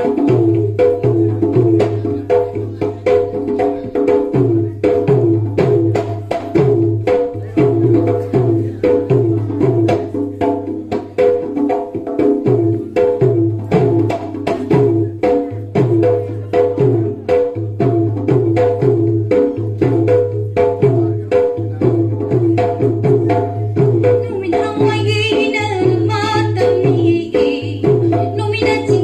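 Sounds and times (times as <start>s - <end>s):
dholak drum beating: 0.0s - 29.0s
woman singing: 24.0s - 29.0s.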